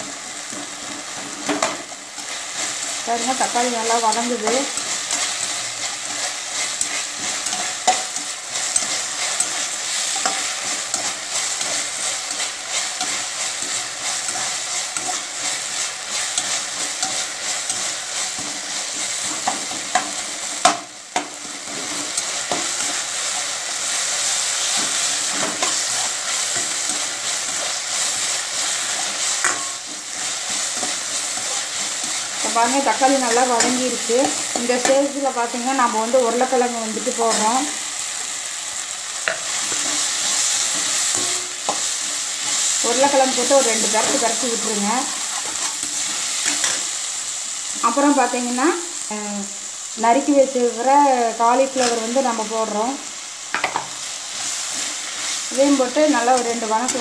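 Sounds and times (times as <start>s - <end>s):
vegetables sizzling in oil: 0.0s - 57.0s
spatula scraping a pan: 0.5s - 35.1s, 45.0s - 46.9s.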